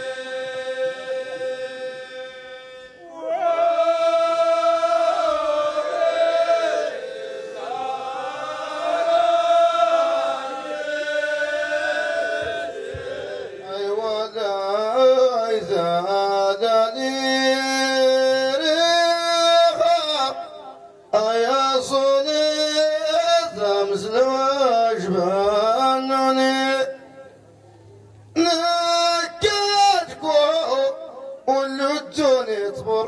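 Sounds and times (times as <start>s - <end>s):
group of men chanting: 0.0s - 17.1s.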